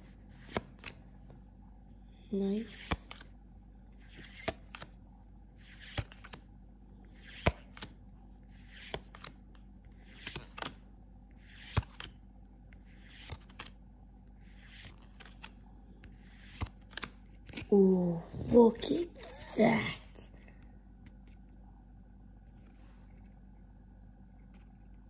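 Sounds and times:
cards flicking: 0:10.1 - 0:10.8, 0:16.1 - 0:17.7.

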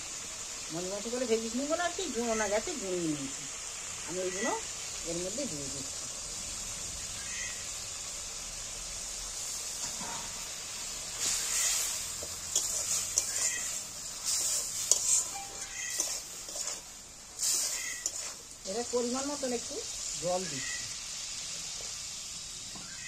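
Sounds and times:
curry sizzling in a pan: 0:00.0 - 0:23.0
metal spatula scraping and stirring: 0:09.8 - 0:20.0.

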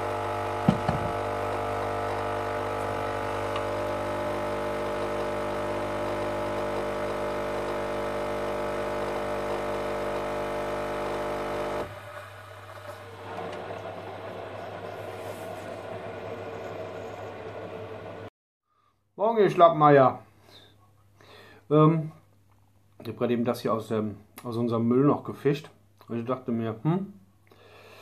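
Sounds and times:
coffee machine pump humming: 0:00.0 - 0:18.3
coffee running hiss: 0:00.0 - 0:18.3.

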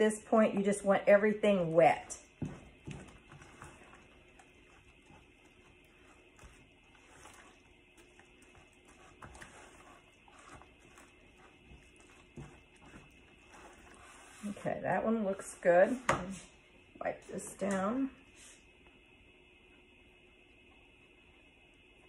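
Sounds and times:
spoon stirring wet dough: 0:00.0 - 0:16.6.

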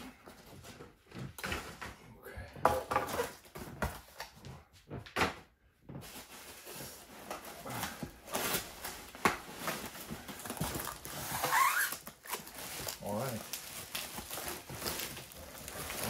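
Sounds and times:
bubble wrap crinkling: 0:06.1 - 0:16.0.

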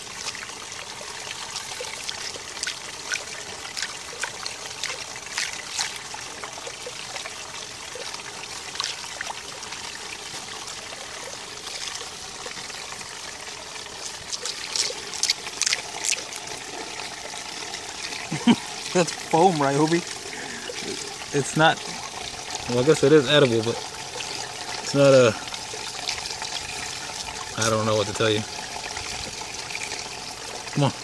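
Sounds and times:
fountain water trickling: 0:00.0 - 0:31.0
dog biting at water: 0:14.3 - 0:16.2.

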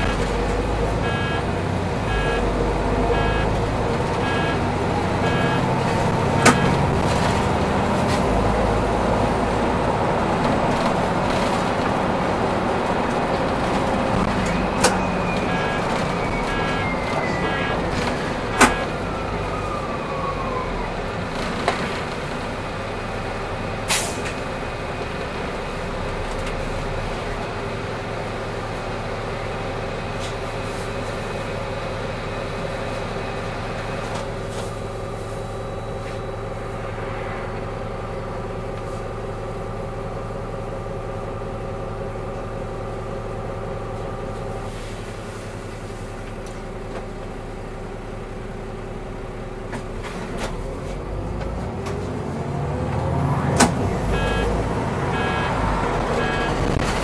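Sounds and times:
bus drivetrain whine: 0:00.0 - 0:57.0
diesel engine idling: 0:00.0 - 0:57.0
air brakes hissing: 0:23.9 - 0:24.3.

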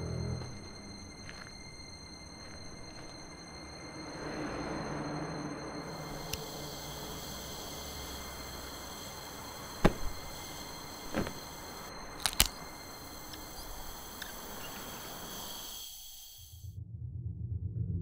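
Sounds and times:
steady background hiss: 0:05.4 - 0:16.6
sharp clicks: 0:12.1 - 0:14.8.

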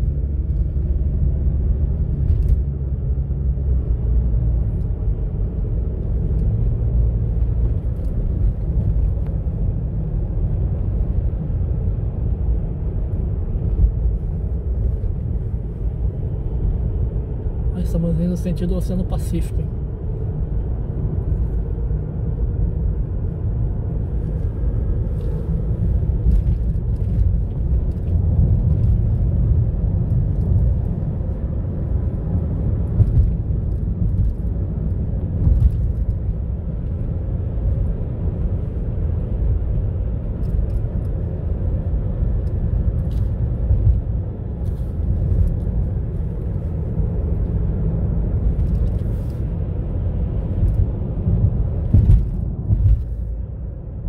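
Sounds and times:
car tyres and engine rumble: 0:00.0 - 0:54.0.

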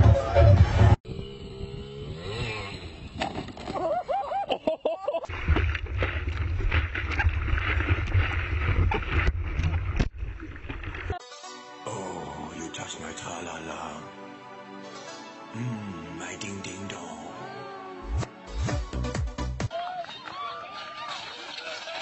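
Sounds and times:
water splashing and rushing: 0:05.3 - 0:11.2
person's voice wavering: 0:15.5 - 0:18.2.

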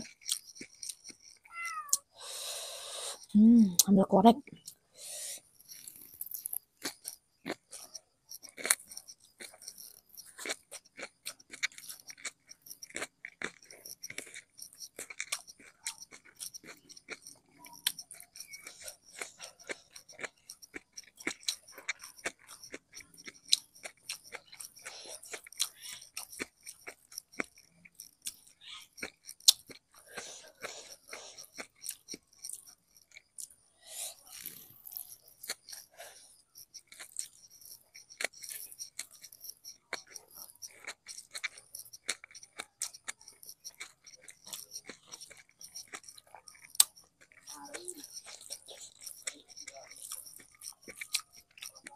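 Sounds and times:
mouth clicks and smacks: 0:00.0 - 0:02.5, 0:03.1 - 0:04.8, 0:05.7 - 0:36.0, 0:36.6 - 0:51.9
crunchy chewing: 0:00.0 - 0:51.9.

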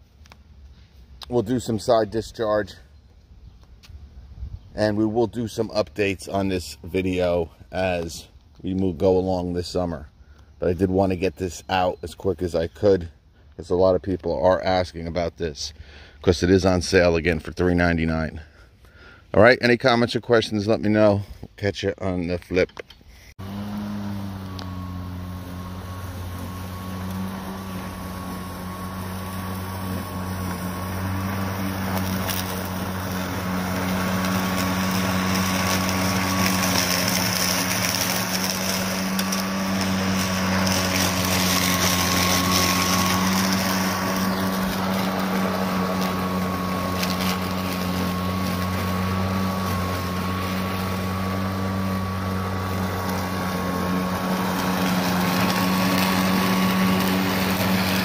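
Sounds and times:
electric lawn mower humming: 0:23.4 - 0:58.0.

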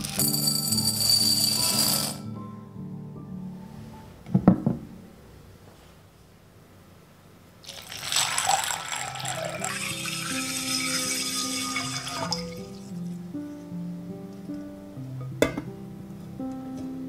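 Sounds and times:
water pouring into glass bowl: 0:07.6 - 0:13.1.

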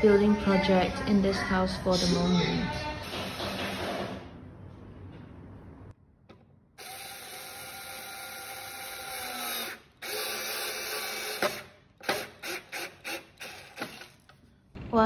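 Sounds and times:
cordless drill driving screws: 0:06.8 - 0:14.3.

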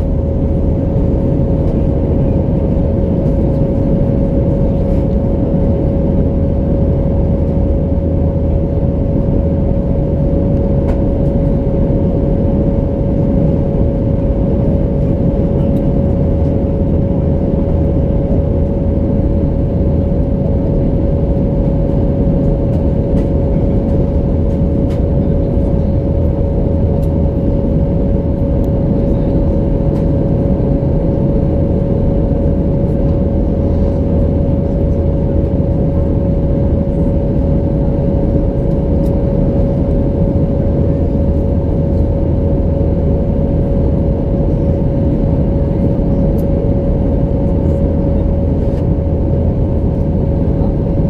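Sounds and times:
engine and airflow rumble: 0:00.0 - 0:51.0
steady high hum: 0:00.0 - 0:51.0.

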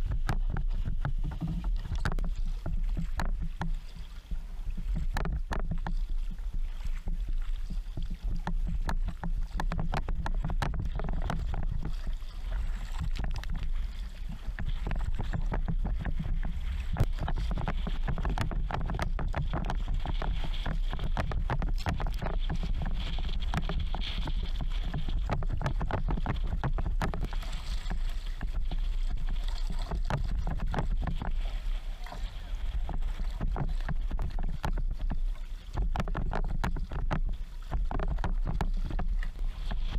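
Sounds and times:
water rushing along hull: 0:00.0 - 0:39.9.

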